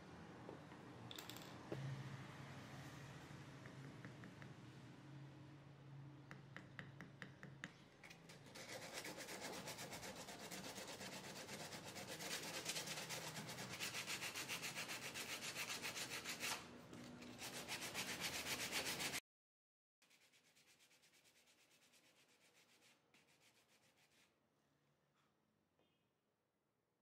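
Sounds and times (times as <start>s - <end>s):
sandpaper rubbing on wood: 8.5s - 16.6s, 17.3s - 19.2s.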